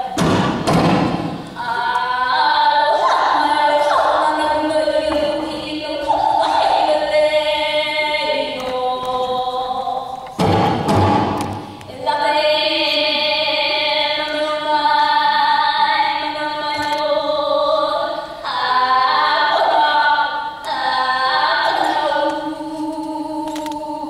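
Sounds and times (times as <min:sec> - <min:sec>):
women chanting in unison: 0:01.6 - 0:10.9.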